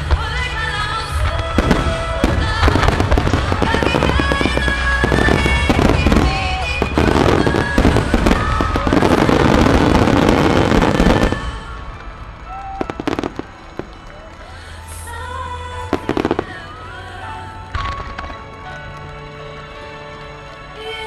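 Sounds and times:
show music: 0.0 - 21.0
firework shells bursting: 1.2 - 14.0.

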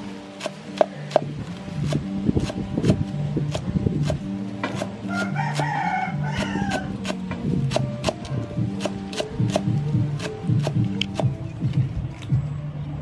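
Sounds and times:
cleaver chopping on wooden board: 0.4 - 1.3, 1.9 - 5.7, 6.4 - 11.4
rooster crowing: 5.0 - 7.0.

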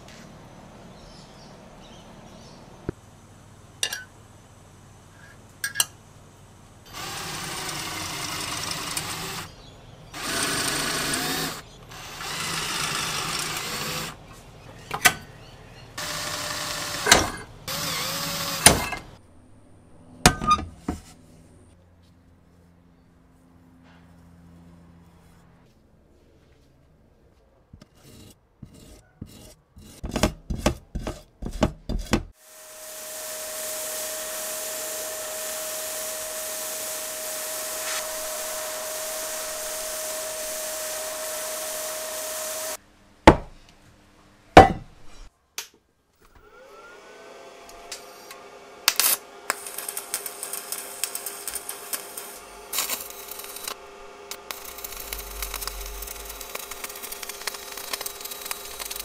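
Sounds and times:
blast cabinet motor: 6.9 - 14.2, 16.0 - 19.2, 32.4 - 42.8, 46.4 - 59.0
abrasive blasting against steel: 32.4 - 42.8, 49.0 - 59.0
sharp knocks: 43.3 - 43.6.

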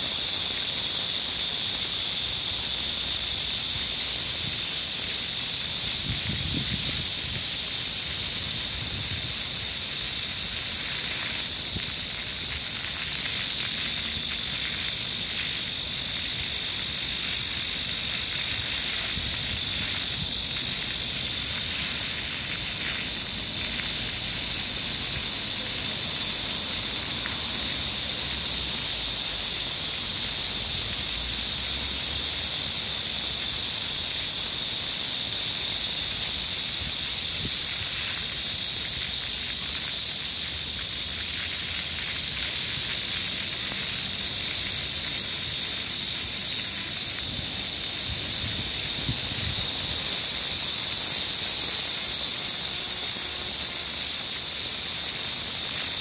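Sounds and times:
cicadas buzzing: 0.0 - 56.0
fountains splashing: 8.1 - 32.5, 36.1 - 48.7.

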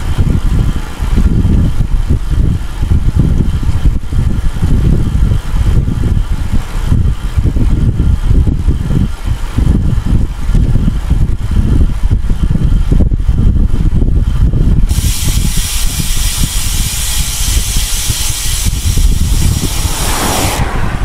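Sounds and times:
wind buffeting microphone: 0.0 - 21.0
loud steady hiss: 14.8 - 21.0.

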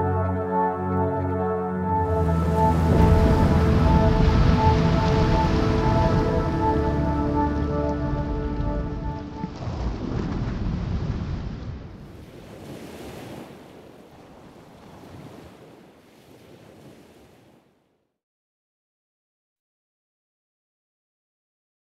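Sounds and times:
held music chord: 0.0 - 9.6
wind: 0.0 - 18.0
ocean surf: 2.0 - 17.8.

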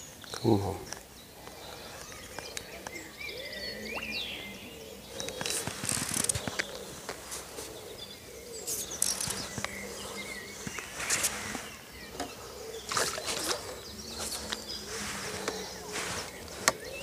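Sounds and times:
birds chirping: 0.0 - 17.0
fish splashing at water surface: 12.8 - 15.4.

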